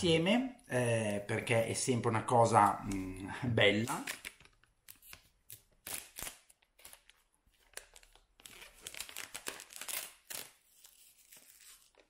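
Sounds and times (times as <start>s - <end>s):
plastic wrapping crinkling and tearing: 3.9s - 12.0s.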